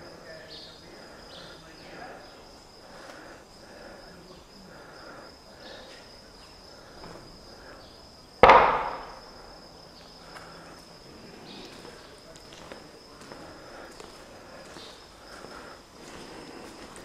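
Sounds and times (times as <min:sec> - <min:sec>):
steady high-pitched whine: 0:00.0 - 0:17.0
sharp bang: 0:08.4 - 0:09.3.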